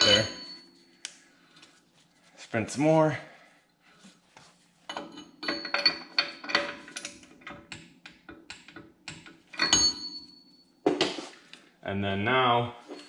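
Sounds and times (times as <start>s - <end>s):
metallic clicks and clinks: 0.0s - 0.5s, 4.9s - 10.3s.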